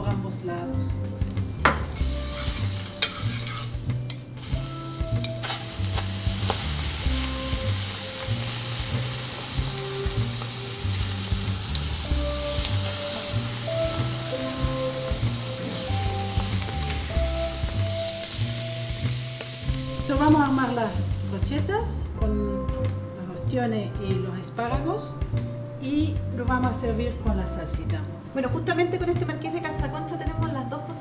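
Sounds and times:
scallops sizzling in a skillet: 1.2s - 21.5s.

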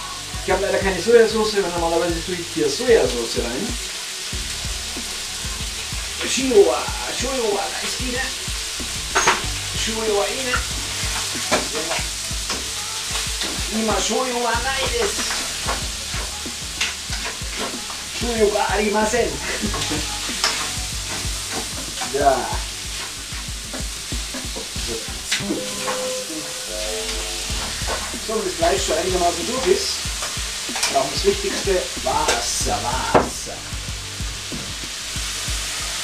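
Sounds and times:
chicken and onions sizzling in oil: 0.0s - 36.0s
wooden spatula scraping a wok: 19.3s - 32.4s.

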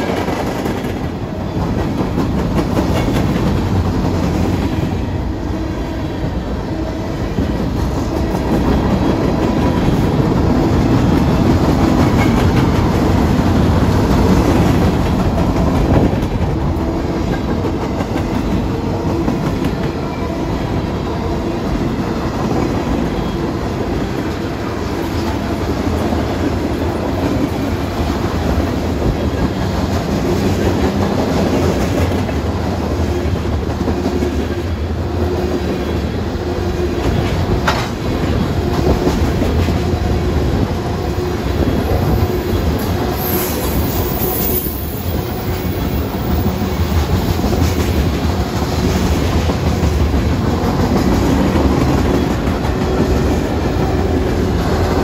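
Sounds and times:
train wheels rumbling on rail: 0.0s - 55.0s
high-pitched wheel squeal: 43.2s - 45.2s.

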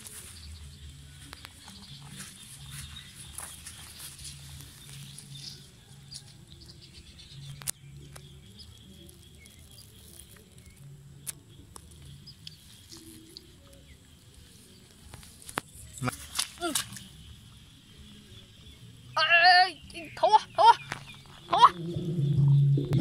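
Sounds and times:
low steady rumble: 21.7s - 23.0s.

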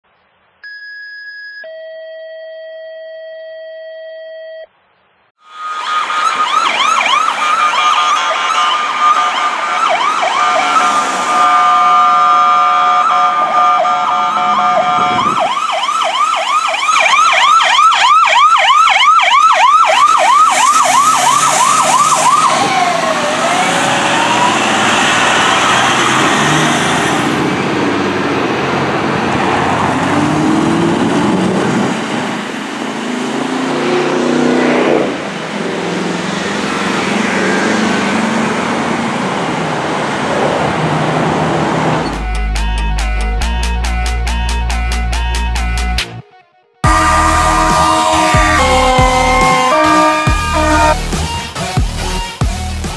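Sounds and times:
engine and road noise: 4.7s - 46.2s, 46.8s - 52.9s
siren fast yelp: 5.4s - 26.7s, 46.8s - 51.0s
siren blaring tones: 5.4s - 28.2s, 46.3s - 51.1s
emergency sirens wailing: 5.4s - 52.2s.

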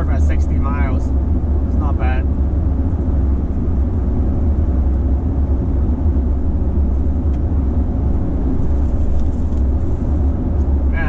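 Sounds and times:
low road and tyre rumble in car: 0.0s - 11.0s.

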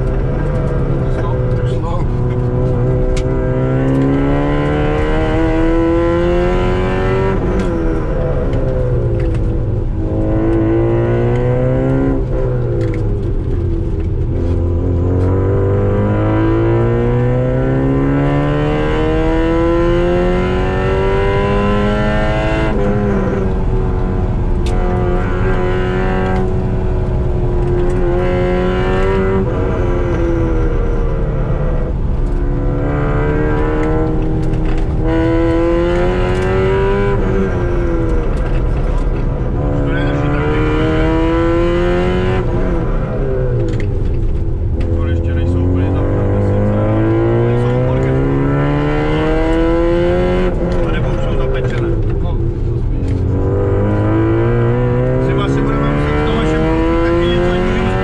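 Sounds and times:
car engine accelerating: 0.0s - 58.0s.

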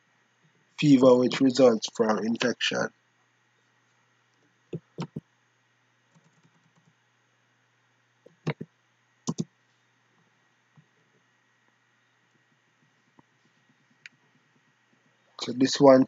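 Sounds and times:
computer mouse clicks: 4.7s - 5.2s, 8.3s - 8.7s, 9.3s - 9.5s
keyboard ticks: 4.8s - 5.2s, 8.3s - 8.7s.

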